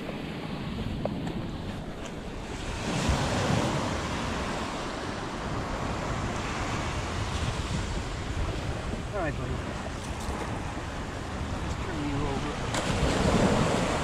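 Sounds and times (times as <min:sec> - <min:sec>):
small waves breaking on a beach: 0:00.0 - 0:14.0
wind on the microphone: 0:00.0 - 0:14.0.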